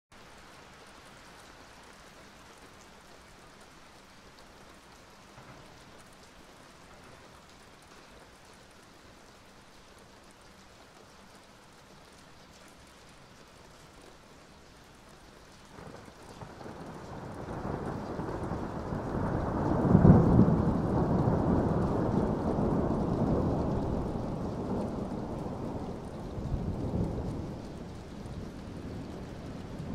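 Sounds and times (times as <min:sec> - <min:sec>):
steady rainfall: 0:00.1 - 0:29.9
low thunder rumble: 0:15.8 - 0:29.9.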